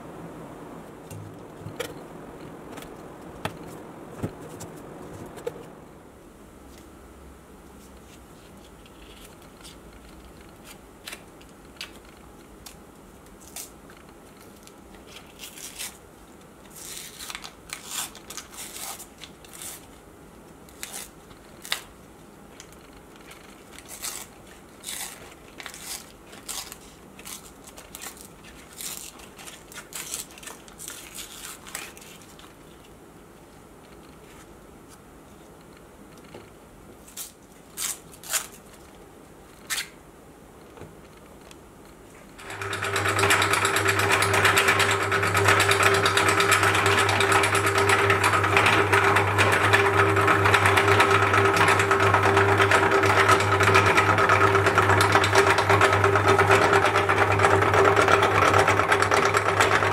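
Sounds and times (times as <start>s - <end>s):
paper wrappers crinkling and tearing: 14.3s - 16.0s, 16.7s - 20.0s, 22.6s - 33.0s, 37.0s - 39.0s.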